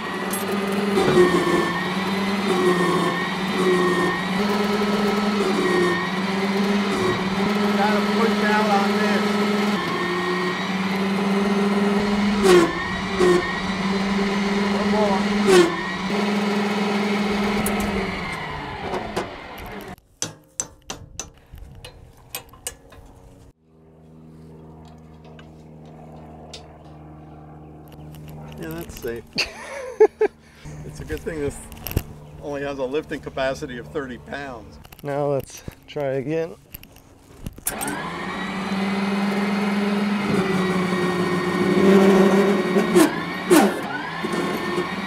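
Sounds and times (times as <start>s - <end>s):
hydraulic pump motor whining: 0.0s - 20.0s, 36.7s - 45.0s
low machine hum: 0.0s - 20.0s, 21.7s - 35.0s.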